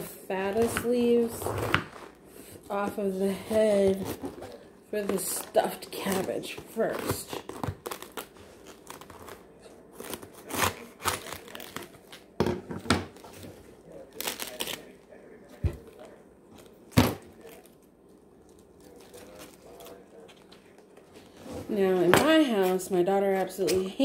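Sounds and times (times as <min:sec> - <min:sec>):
cabbage leaves snapping: 0:10.0 - 0:12.3, 0:14.1 - 0:15.0.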